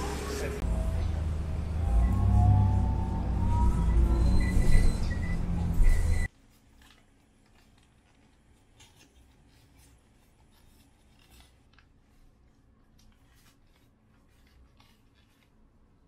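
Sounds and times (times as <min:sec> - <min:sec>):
paper wrapper crinkling: 0:06.4 - 0:16.0.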